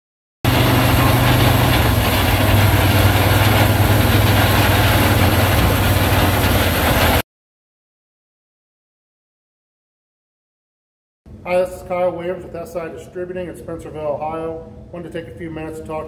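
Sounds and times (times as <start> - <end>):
broad rushing noise: 0.5 - 7.2
combine engine drone: 0.5 - 7.2.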